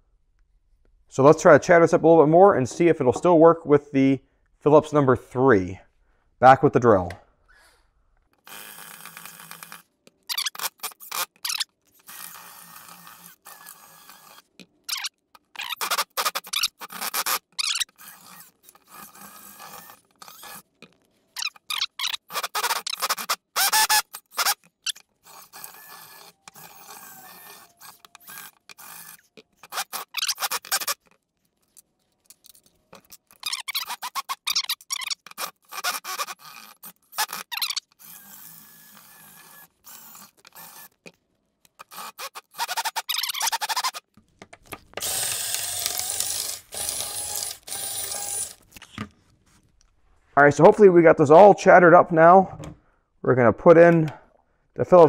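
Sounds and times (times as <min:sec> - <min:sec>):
cordless drill bursts: 0:08.4 - 0:14.5, 0:21.8 - 0:24.6, 0:25.2 - 0:31.0, 0:33.5 - 0:41.0, 0:41.8 - 0:44.0, 0:45.0 - 0:48.6
bit grinding in screw heads: 0:08.5 - 0:31.2, 0:32.3 - 0:41.0, 0:41.7 - 0:44.1
impact driver bursts: 0:21.8 - 0:24.6.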